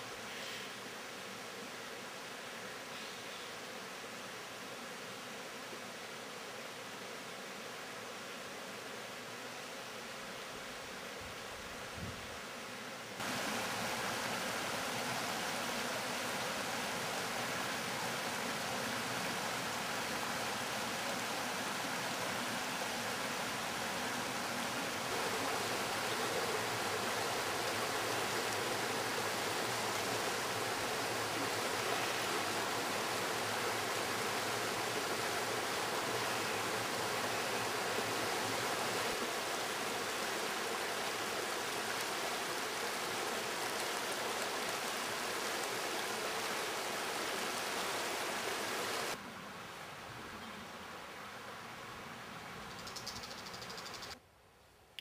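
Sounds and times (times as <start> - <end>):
river water rushing over stones: 13.2 - 49.2.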